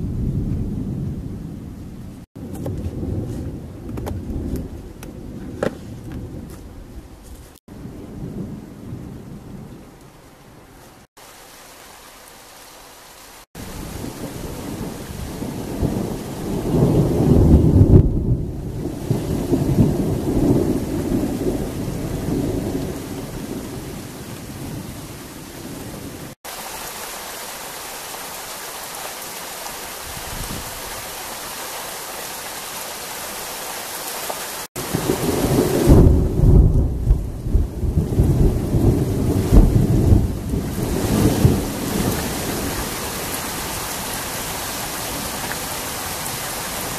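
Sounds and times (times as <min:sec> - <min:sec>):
thunder rumbling: 0:00.0 - 0:10.6, 0:13.6 - 0:26.4, 0:34.7 - 0:46.9
steady rain: 0:00.0 - 0:46.9.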